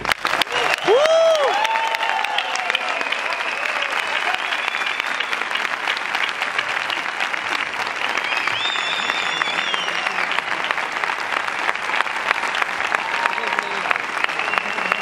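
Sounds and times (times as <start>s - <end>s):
audience applauding: 0.0s - 15.0s
high whistles: 4.4s - 5.5s, 8.2s - 10.3s, 13.5s - 15.0s.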